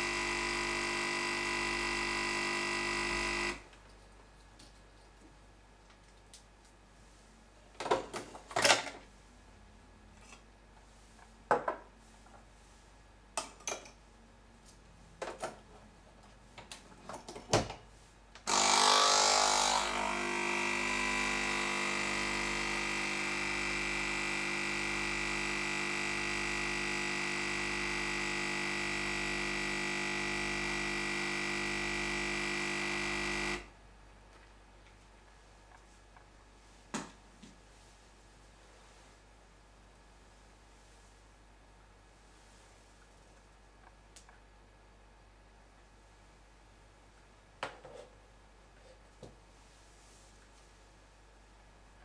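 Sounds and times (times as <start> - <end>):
coffee machine pump humming: 0.0 - 3.6, 18.5 - 33.7.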